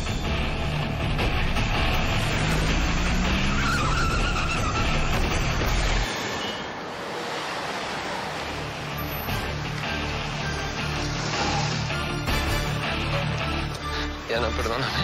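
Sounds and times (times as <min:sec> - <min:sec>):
car engines revving hard: 0:00.0 - 0:13.8
tyre screech: 0:03.4 - 0:08.1.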